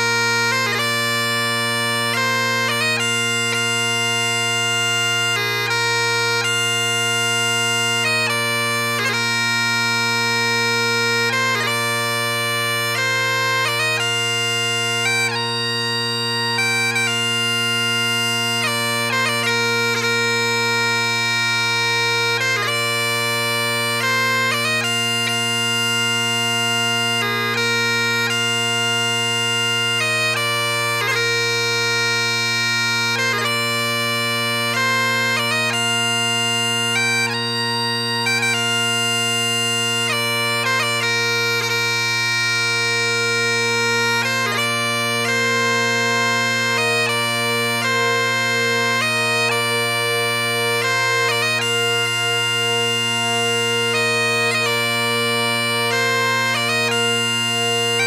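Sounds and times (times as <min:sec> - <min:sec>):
bagpipe playing slow tune: 0:00.0 - 0:58.0.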